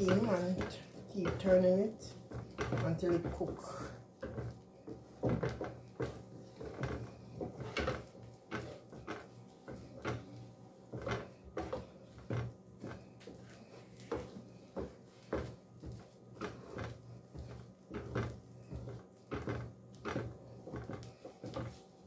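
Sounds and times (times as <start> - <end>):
wooden spoon knocking in pot: 0.0 - 21.9.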